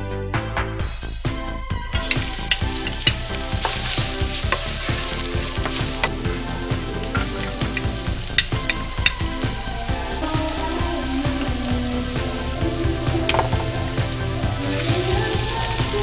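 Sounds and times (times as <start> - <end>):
background music with steady beat: 0.0 - 16.0
garlic sizzling in hot oil: 2.0 - 16.0.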